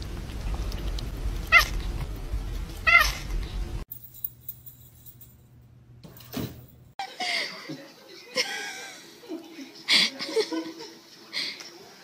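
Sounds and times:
low rumble: 0:00.0 - 0:03.8
cat meowing: 0:01.5 - 0:01.8, 0:02.8 - 0:03.2.

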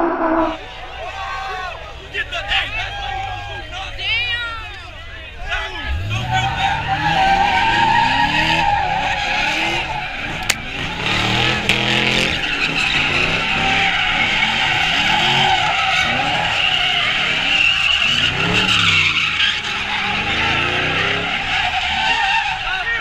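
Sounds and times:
tires squealing on pavement: 0:00.5 - 0:23.0
car engine revving: 0:05.7 - 0:22.7.

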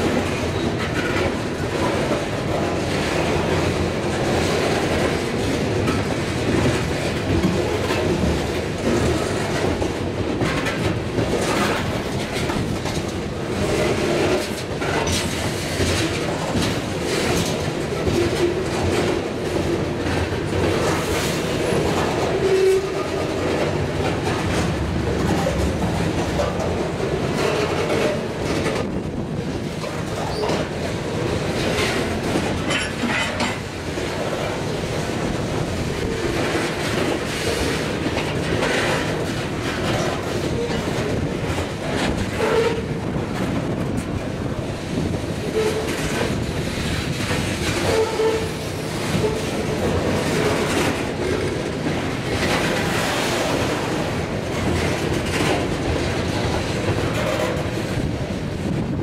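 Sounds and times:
train wheels rumbling on rails: 0:00.0 - 0:59.0
train wheel squeals: 0:22.4 - 0:23.2, 0:30.2 - 0:30.7, 0:42.3 - 0:42.9, 0:47.8 - 0:49.6.

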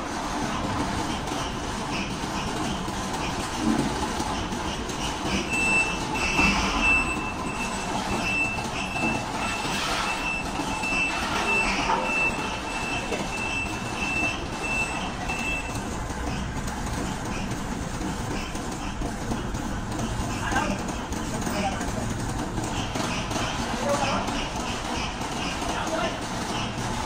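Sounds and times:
forklift engine running: 0:00.0 - 0:27.0
reversing alarm beeping: 0:05.1 - 0:16.0.

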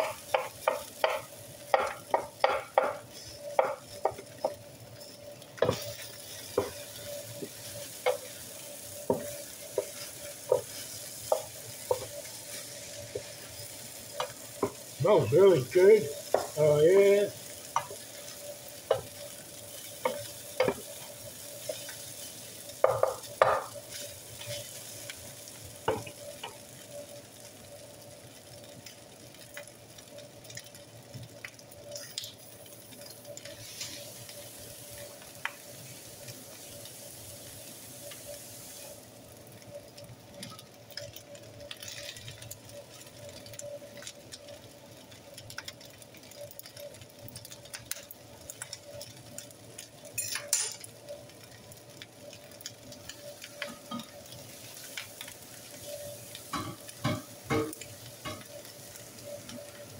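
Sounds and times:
rice sizzling in a skillet: 0:00.0 - 0:59.9
wooden spatula scraping a pan: 0:00.1 - 0:16.6.

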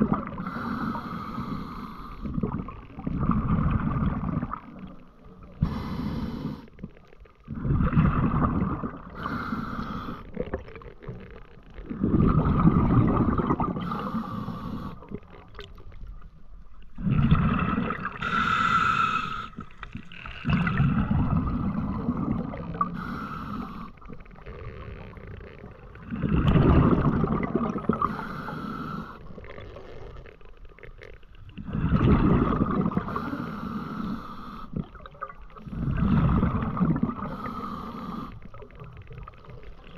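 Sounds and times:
muffled breathing through snorkel: 0:00.4 - 0:02.4, 0:05.5 - 0:06.8, 0:09.1 - 0:10.5, 0:13.6 - 0:15.3, 0:17.1 - 0:19.8, 0:21.4 - 0:24.1, 0:27.9 - 0:30.0, 0:33.0 - 0:35.0, 0:35.6 - 0:38.8.

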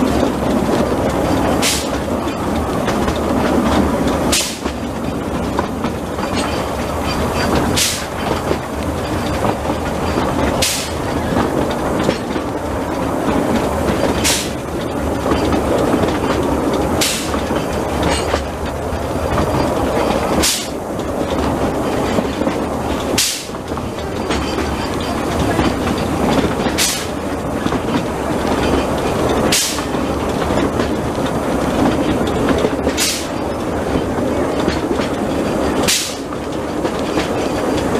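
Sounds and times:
train wheels rumbling and rattling: 0:00.0 - 0:37.9
sharp hissing clack: 0:01.6 - 0:02.1, 0:04.3 - 0:04.8, 0:07.4 - 0:08.4, 0:10.6 - 0:11.1, 0:14.1 - 0:14.7, 0:16.9 - 0:18.4, 0:19.7 - 0:20.8, 0:23.0 - 0:23.7, 0:26.7 - 0:27.3, 0:29.4 - 0:30.2, 0:32.9 - 0:33.6, 0:35.8 - 0:36.4.

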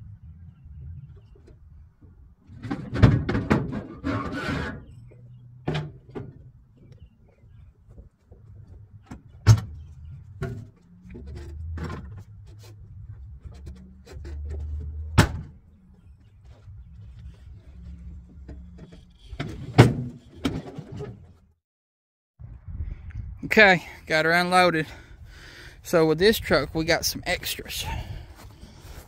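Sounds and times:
low steady rumble: 0:00.0 - 0:02.9, 0:04.7 - 0:20.4
metal knocks and clanks: 0:02.5 - 0:07.1, 0:07.9 - 0:21.4
truck door slamming: 0:15.0 - 0:15.6.

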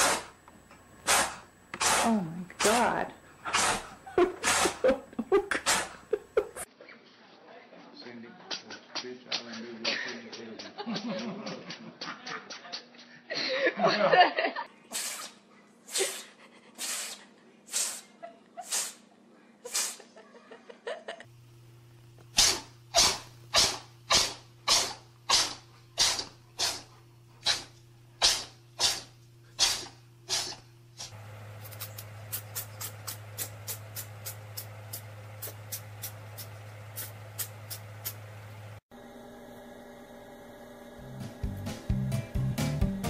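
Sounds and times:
cat breathy bursts: 0:14.9 - 0:19.1, 0:19.7 - 0:20.1, 0:22.4 - 0:30.6.

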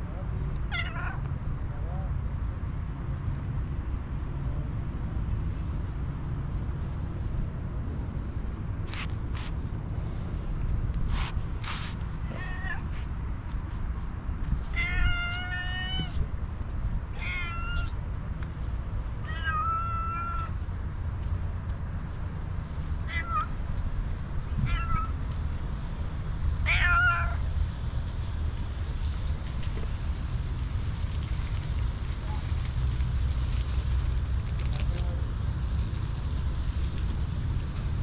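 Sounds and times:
cat meowing: 0:00.7 - 0:01.3, 0:12.2 - 0:12.9, 0:14.7 - 0:16.2, 0:17.2 - 0:18.0, 0:19.2 - 0:20.6, 0:23.0 - 0:23.5, 0:24.6 - 0:25.2, 0:26.6 - 0:27.4.

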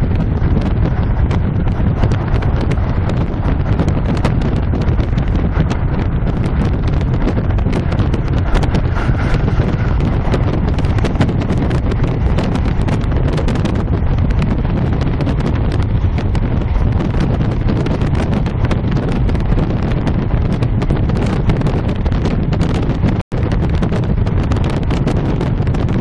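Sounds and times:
train rumbling: 0:00.0 - 0:26.0
wheels clicking and rattling: 0:00.0 - 0:26.0.

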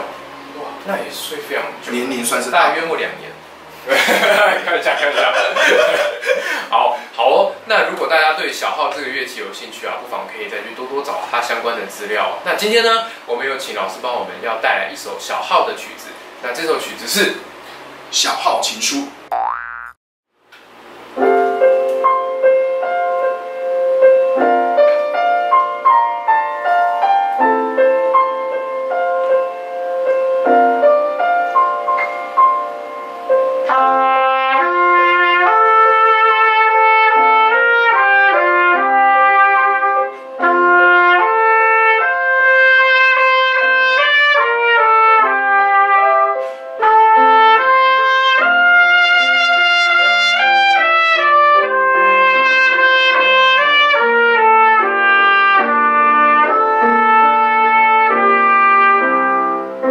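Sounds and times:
piano chords: 0:21.1 - 0:59.9
trumpet melody: 0:33.6 - 0:59.9.

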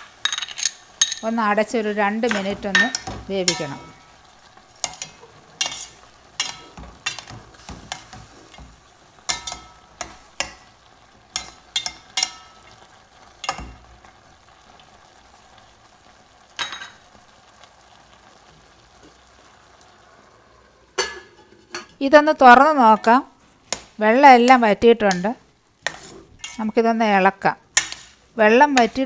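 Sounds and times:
spoon scraping and knocking a pan: 0:00.0 - 0:01.3, 0:02.2 - 0:04.1, 0:04.8 - 0:12.8, 0:23.7 - 0:26.7, 0:27.8 - 0:29.0.

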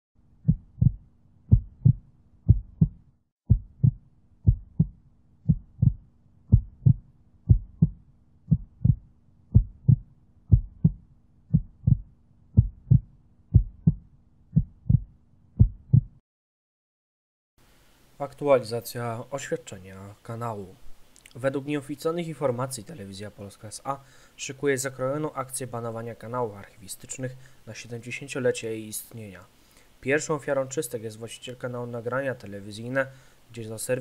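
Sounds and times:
heartbeat thumps: 0:00.4 - 0:16.2
faint steady hum: 0:17.6 - 0:34.0.

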